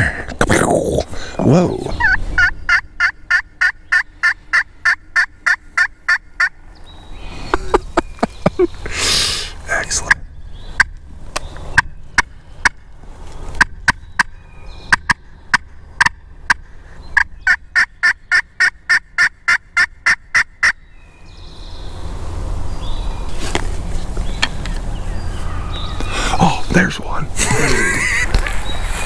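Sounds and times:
turkey call clucks and yelps: 0:01.8 - 0:06.6, 0:14.9 - 0:20.8, 0:27.5 - 0:28.4
low rushing noise: 0:21.0 - 0:29.0.

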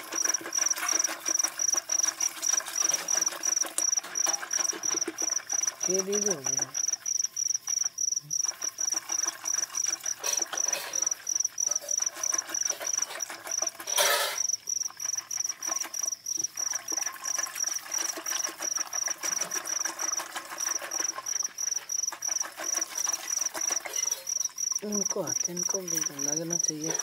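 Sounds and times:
cricket chirping: 0:00.0 - 0:27.0
curd swishing in steel pot: 0:15.2 - 0:24.2.

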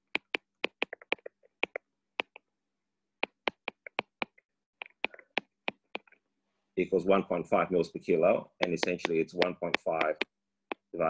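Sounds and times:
stylus tapping on tablet screen: 0:00.0 - 0:02.5, 0:03.2 - 0:06.2, 0:08.6 - 0:11.0.

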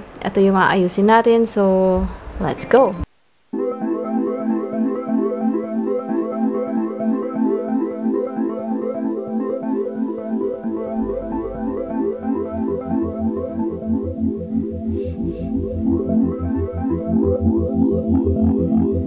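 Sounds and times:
synthesizer and electric piano tune: 0:03.5 - 0:19.0
bass line: 0:10.7 - 0:19.0.

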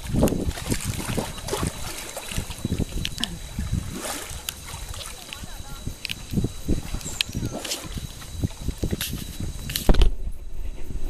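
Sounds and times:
river water splashing and sloshing: 0:00.0 - 0:10.1
crackles of spray: 0:08.8 - 0:10.0.

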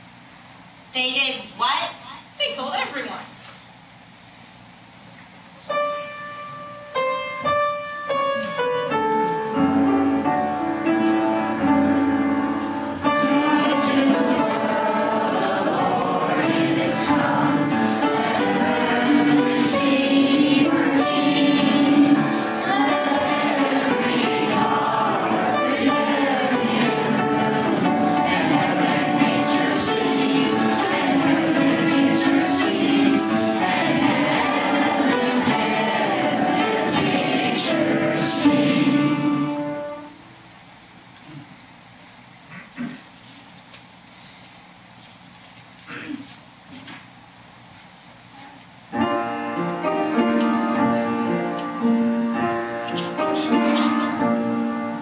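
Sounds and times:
piano chords: 0:05.6 - 0:40.5, 0:48.9 - 0:55.0
children singing: 0:13.0 - 0:40.1, 0:49.9 - 0:55.0.

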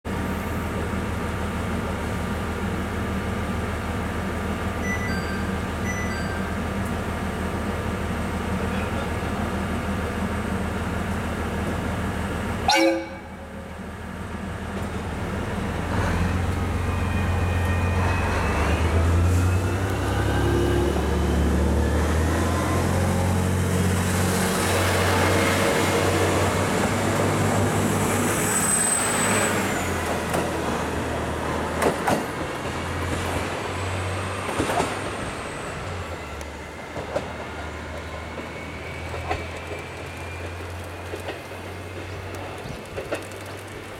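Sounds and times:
train horn toot: 0:12.7 - 0:13.4
wheel squeal: 0:28.3 - 0:29.9
wheels clicking over rail joints: 0:37.0 - 0:43.9.

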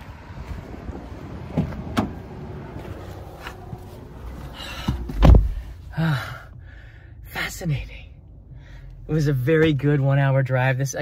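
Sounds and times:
rumbling movement noise: 0:00.0 - 0:05.9.

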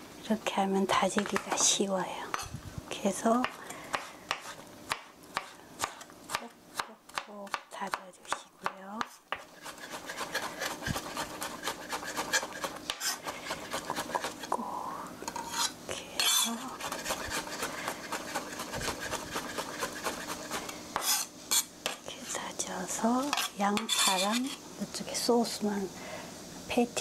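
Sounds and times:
knife chopping on cutting board: 0:03.4 - 0:08.0, 0:08.6 - 0:14.4, 0:15.5 - 0:22.0.

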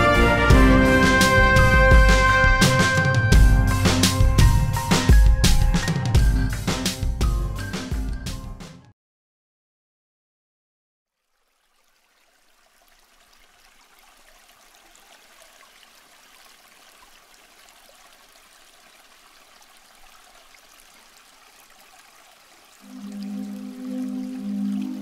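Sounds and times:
new-age music with low notes: 0:00.0 - 0:08.8, 0:22.8 - 0:25.0
water trickling: 0:11.1 - 0:25.0.

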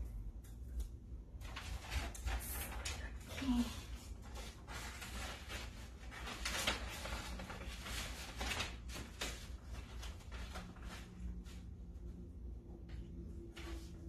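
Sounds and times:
stiff paper rustling and crinkling: 0:01.4 - 0:11.6.

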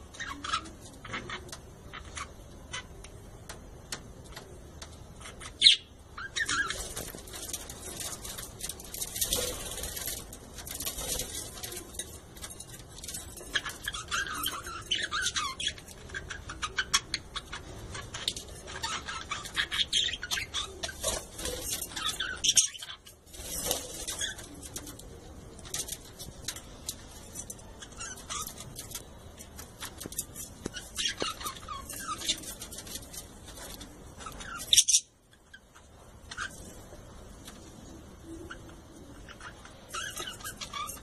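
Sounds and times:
budgerigars chattering: 0:13.4 - 0:23.0.

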